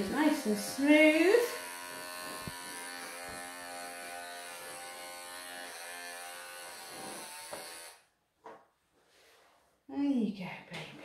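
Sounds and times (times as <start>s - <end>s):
electric clippers buzzing: 0.0s - 8.1s.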